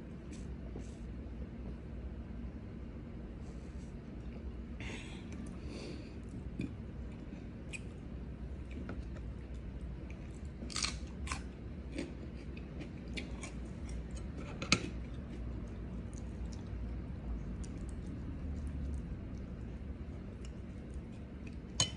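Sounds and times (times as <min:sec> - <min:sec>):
chewing and crunching vegetables: 0:06.2 - 0:21.9.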